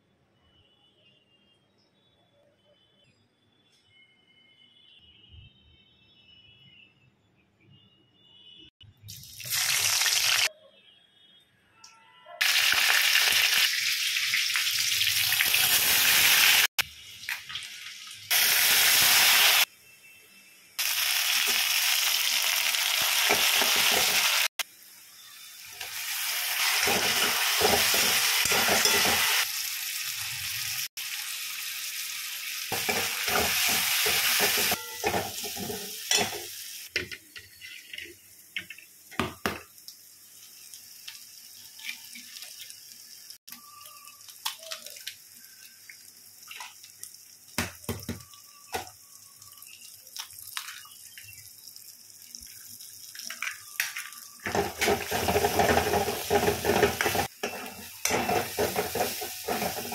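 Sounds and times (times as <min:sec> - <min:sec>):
vegetables sizzling in a wok: 0:09.2 - 0:10.5, 0:12.4 - 0:49.6, 0:53.6 - 0:59.9
metal spoon scraping wok: 0:26.6 - 0:29.4, 0:54.5 - 0:59.9.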